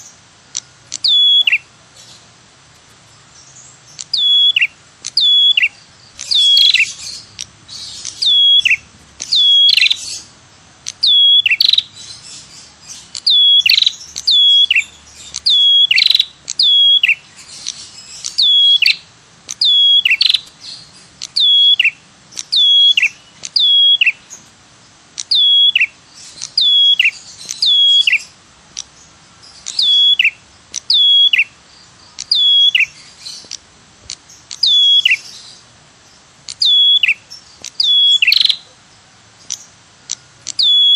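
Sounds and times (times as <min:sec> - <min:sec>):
bird calling: 0:00.0 - 0:02.3, 0:03.1 - 0:40.9.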